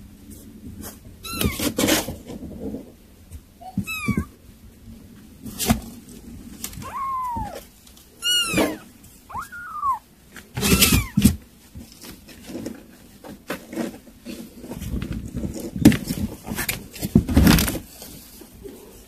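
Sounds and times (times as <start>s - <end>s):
kitten meowing: 1.2s - 1.7s, 3.6s - 4.4s, 6.7s - 11.3s.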